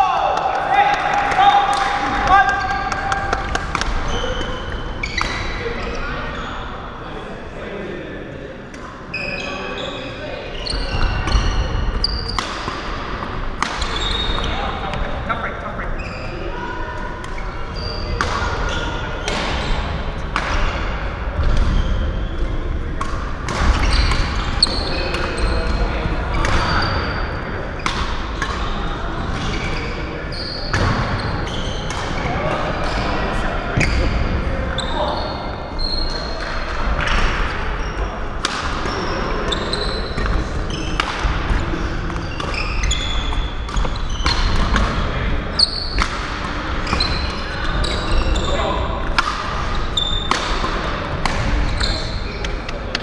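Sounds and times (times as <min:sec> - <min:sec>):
shoes squeaking on court floor: 0:02.4 - 0:06.9, 0:08.8 - 0:33.2, 0:33.8 - 0:53.0
rackets striking shuttlecock: 0:49.0 - 0:52.0.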